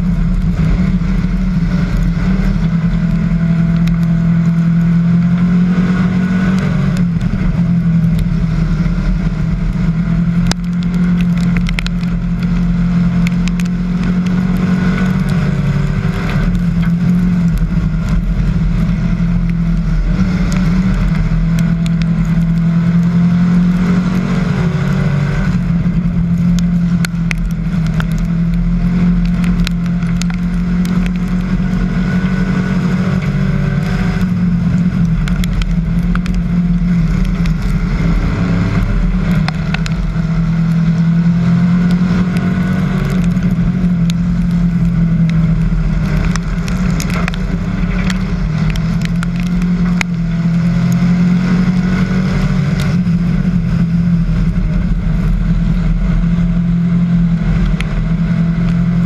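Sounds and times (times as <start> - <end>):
race car engine droning: 0.0 - 59.0
ticks and rattles: 6.6 - 23.1, 25.4 - 32.4, 33.1 - 51.0.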